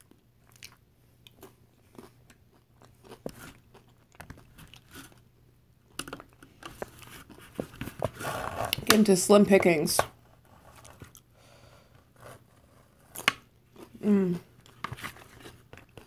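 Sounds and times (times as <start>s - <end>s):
chewing crunchy chips: 0.0s - 5.3s, 13.1s - 16.0s.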